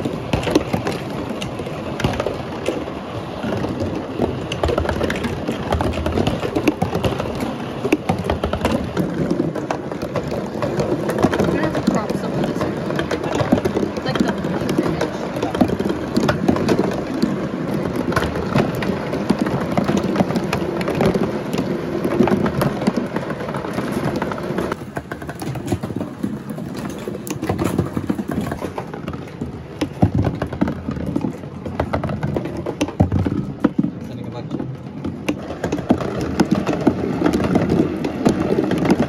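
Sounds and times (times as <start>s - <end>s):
marble knocking cardboard walls: 0.0s - 39.0s
marble rolling down cardboard track: 0.0s - 39.0s.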